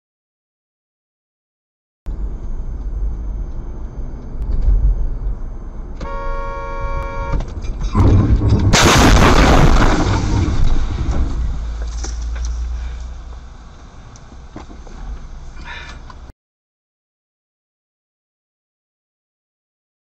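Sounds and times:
car road rumble: 0:02.1 - 0:16.3
car horn: 0:06.0 - 0:07.6
car crash: 0:07.3 - 0:13.2
glass shattering: 0:08.7 - 0:11.0.

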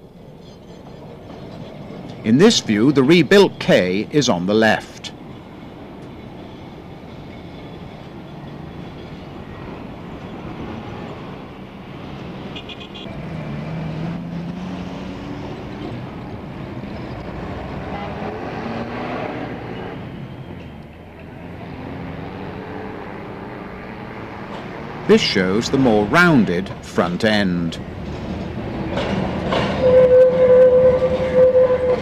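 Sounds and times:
low traffic rumble: 0:00.0 - 0:32.0
vehicle horns tooting: 0:12.6 - 0:13.1, 0:29.8 - 0:32.0.

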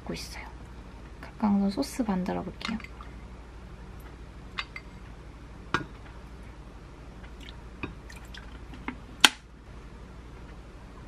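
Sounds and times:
small liquid drips: 0:02.7 - 0:03.2, 0:07.2 - 0:08.9.

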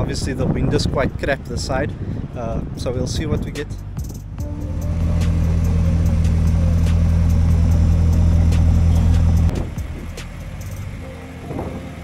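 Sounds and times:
car engine idling: 0:03.7 - 0:12.0.

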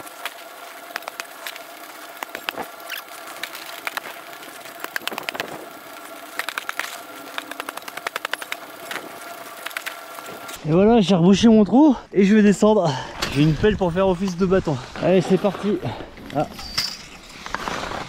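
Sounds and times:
snow shovel scraping snow: 0:14.1 - 0:18.0.

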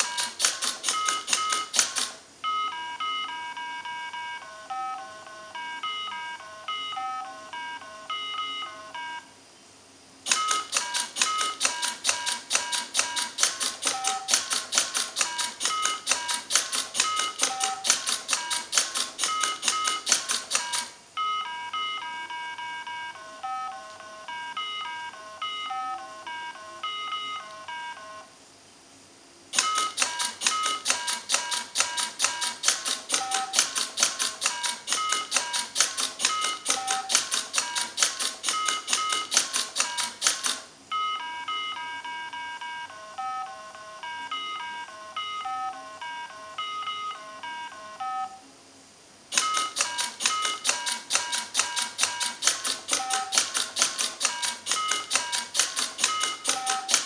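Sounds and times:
rapid mechanical clicking: 0:00.0 - 0:02.2, 0:10.2 - 0:21.0, 0:29.5 - 0:40.7, 0:49.3 - 0:57.0
electronic game beeps: 0:10.3 - 0:14.5, 0:15.2 - 0:28.2, 0:29.6 - 0:33.8, 0:34.5 - 0:48.4, 0:53.0 - 0:53.6, 0:54.3 - 0:57.0.

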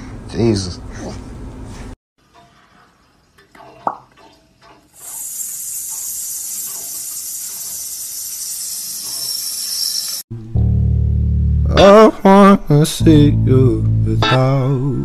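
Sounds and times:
loud high-pitched hiss: 0:05.4 - 0:10.2.

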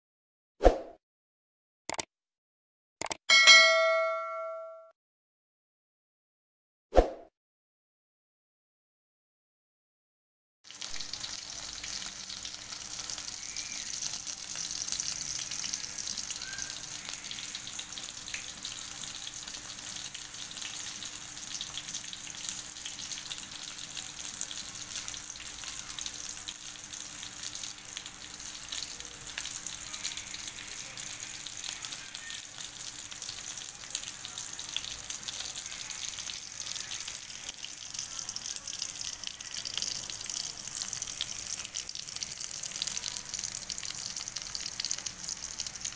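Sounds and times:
fish sizzling in hot oil: 0:10.7 - 0:45.9.

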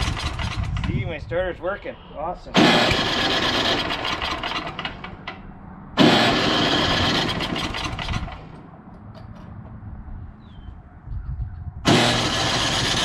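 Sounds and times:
electric starter cranking engine: 0:00.0 - 0:01.0, 0:02.5 - 0:08.6, 0:11.9 - 0:13.0.

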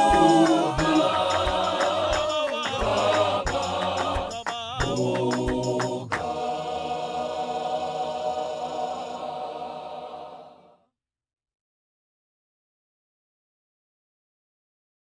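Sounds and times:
hand claps: 0:00.0 - 0:06.4
church choir singing: 0:00.0 - 0:10.8.

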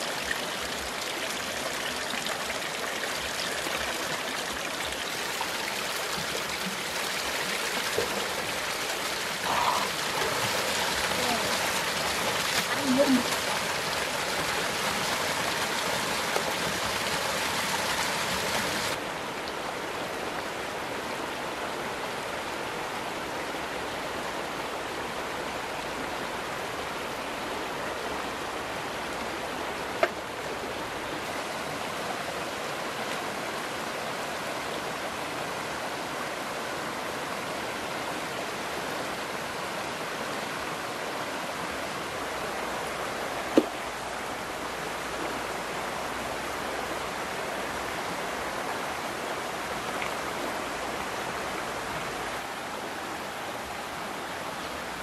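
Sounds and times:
running water rushing: 0:00.0 - 0:55.0.

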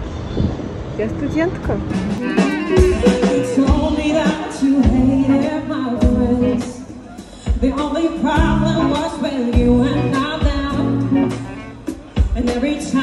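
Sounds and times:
steady drum beat: 0:01.7 - 0:13.0
person singing: 0:02.2 - 0:13.0.

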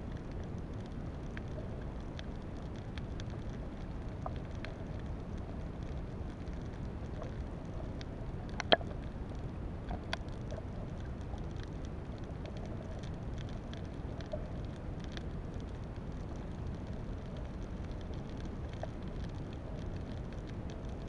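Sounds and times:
crackling clicks: 0:00.0 - 0:21.0.

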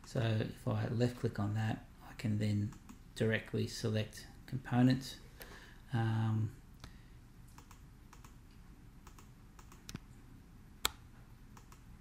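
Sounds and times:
computer mouse clicking: 0:02.7 - 0:03.0, 0:07.5 - 0:10.1, 0:10.8 - 0:11.9.

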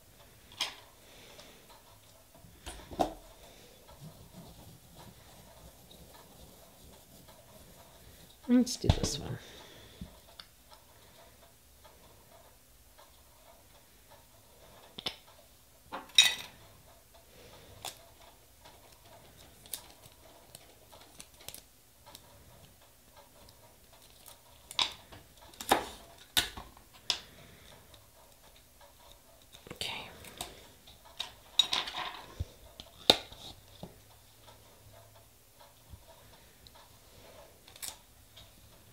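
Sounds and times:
light clicks and taps of tools: 0:10.0 - 0:38.9.

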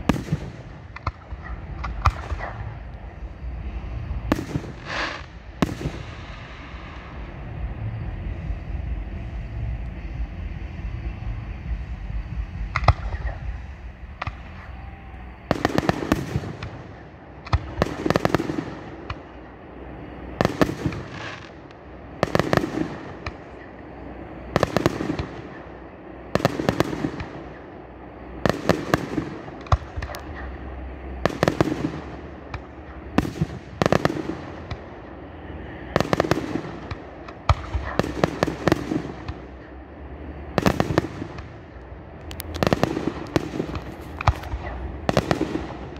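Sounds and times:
low rumble: 0:00.0 - 0:15.6, 0:29.4 - 0:45.9
firework bangs: 0:00.0 - 0:27.8, 0:28.4 - 0:45.9.

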